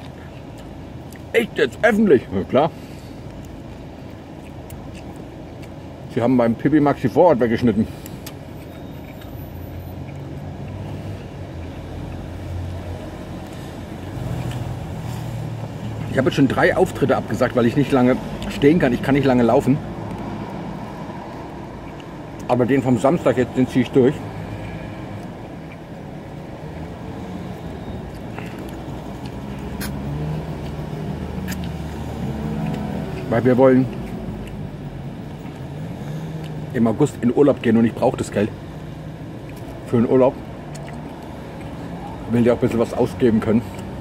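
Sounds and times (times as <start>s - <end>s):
vehicle engine rumbling: 0.0s - 44.0s.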